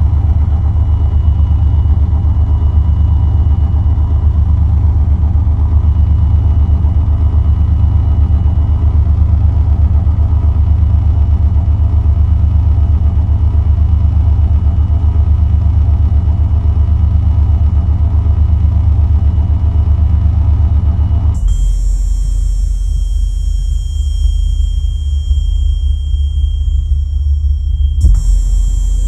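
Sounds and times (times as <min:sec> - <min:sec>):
low synthesizer drone: 0:00.0 - 0:29.0
thin high tone: 0:21.6 - 0:29.0.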